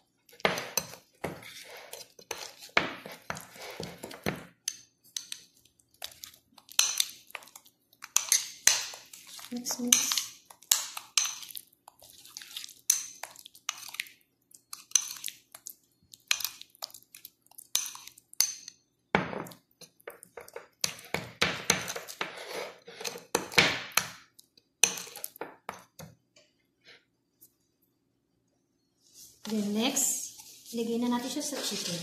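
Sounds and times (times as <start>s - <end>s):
metal spoon scraping ceramic bowl: 0.5s - 4.1s, 21.7s - 23.4s.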